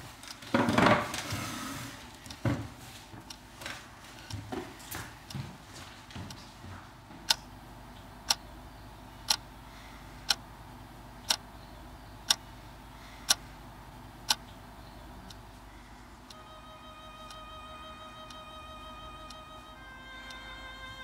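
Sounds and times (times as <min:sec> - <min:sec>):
low room hum: 0:00.0 - 0:21.0
wall clock ticking: 0:07.3 - 0:07.5, 0:08.2 - 0:08.5, 0:09.2 - 0:09.5, 0:10.2 - 0:10.5, 0:11.3 - 0:11.5, 0:12.2 - 0:12.6, 0:13.2 - 0:13.5, 0:14.2 - 0:14.6, 0:15.2 - 0:15.5, 0:16.2 - 0:21.0.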